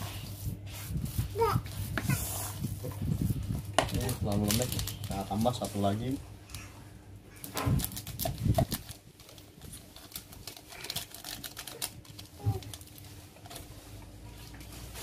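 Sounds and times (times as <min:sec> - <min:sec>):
clicking and rustling of bait mixing: 0:03.7 - 0:05.9, 0:07.4 - 0:14.7.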